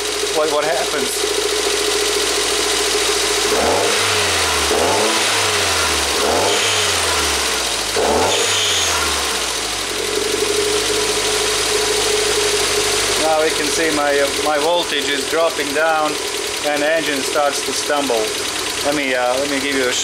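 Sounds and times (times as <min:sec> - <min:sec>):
car engine revving and idling: 0:00.0 - 0:20.0.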